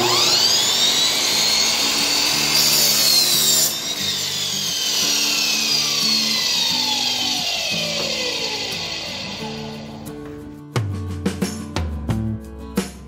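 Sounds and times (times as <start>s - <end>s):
miter saw motor whine: 0.0s - 10.2s
saw cutting through board: 0.0s - 10.3s.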